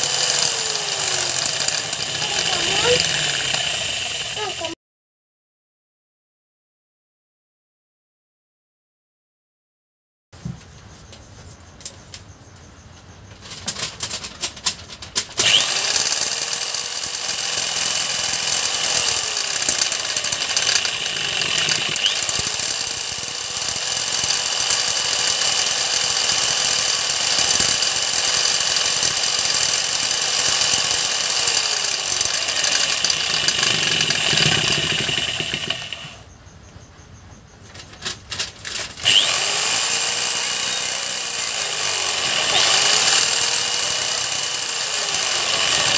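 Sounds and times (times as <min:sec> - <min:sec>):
electric drill running: 0:00.0 - 0:04.8, 0:15.4 - 0:36.2, 0:39.0 - 0:45.9.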